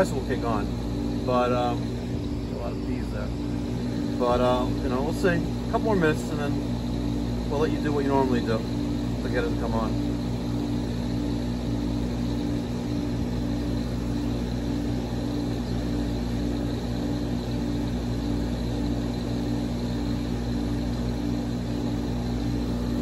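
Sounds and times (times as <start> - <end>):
faintly pulsing tone: 0.0 - 8.8
pool equipment motor hum: 0.0 - 23.0.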